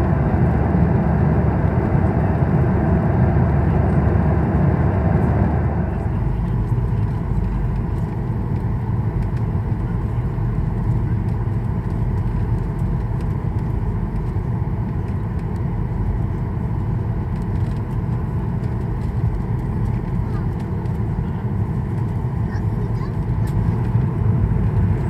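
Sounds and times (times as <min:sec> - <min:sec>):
jet engines rumbling: 0:00.0 - 0:25.0.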